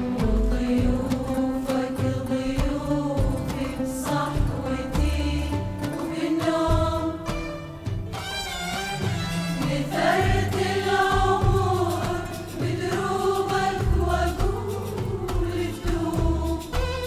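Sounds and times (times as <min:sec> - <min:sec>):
women's choir singing: 0:00.0 - 0:07.8, 0:09.5 - 0:17.0
traditional orchestra playing: 0:08.2 - 0:10.1.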